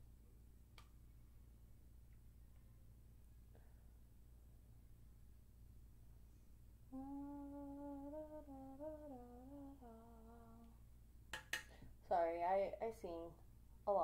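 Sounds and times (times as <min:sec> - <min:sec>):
woman humming a tune: 0:06.9 - 0:10.8.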